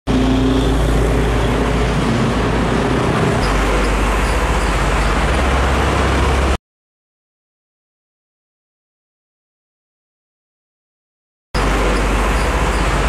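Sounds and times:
heavy truck diesel engines: 0.1s - 6.6s, 11.6s - 13.0s
motorcycles passing: 0.1s - 6.6s.

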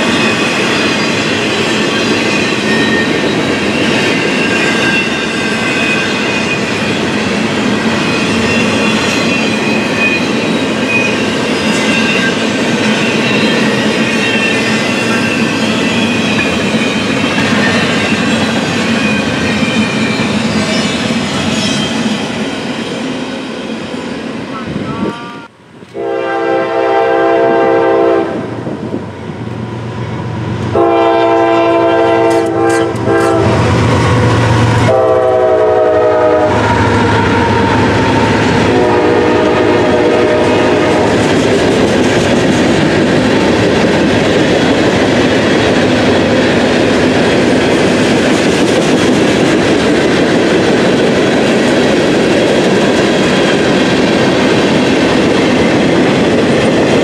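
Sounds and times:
locomotive air horn blasts: 24.8s - 28.4s, 30.7s - 33.7s, 34.8s - 41.1s.

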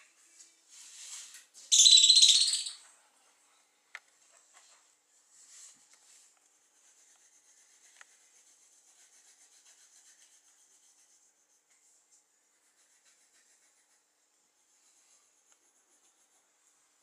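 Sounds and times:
faint soft rubbing: 0.1s - 1.5s, 4.2s - 14.0s, 14.6s - 17.0s.

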